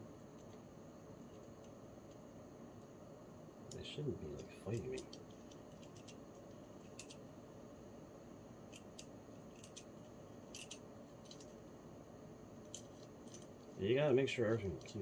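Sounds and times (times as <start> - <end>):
small metallic gear clicks: 4.3 - 7.2, 8.7 - 9.9, 10.5 - 11.6.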